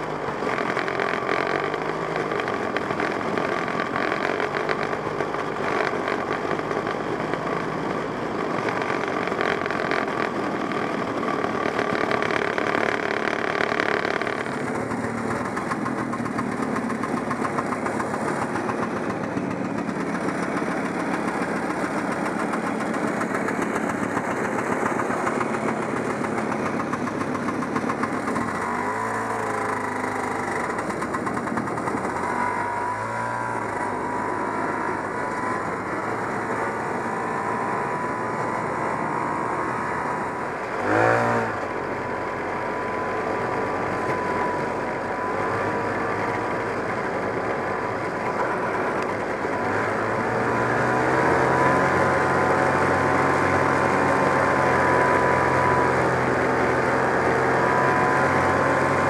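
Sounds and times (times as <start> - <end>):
snowmobile engine running: 0.0 - 59.0.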